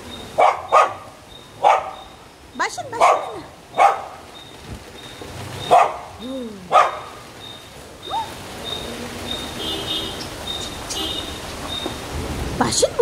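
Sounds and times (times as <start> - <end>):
small dog barking: 0.4 - 2.1, 2.9 - 4.3, 5.6 - 7.2, 8.0 - 8.4.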